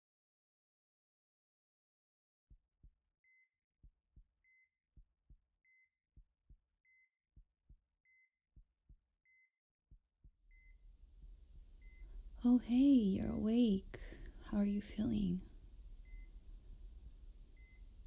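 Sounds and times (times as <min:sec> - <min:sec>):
heart monitor beep: 0:04.4 - 0:04.7, 0:08.1 - 0:08.3, 0:10.5 - 0:10.8, 0:11.8 - 0:12.2, 0:15.4 - 0:16.5, 0:17.1 - 0:18.0
heartbeat double thumps: 0:10.2 - 0:18.0
room noise hiss: 0:10.6 - 0:18.0.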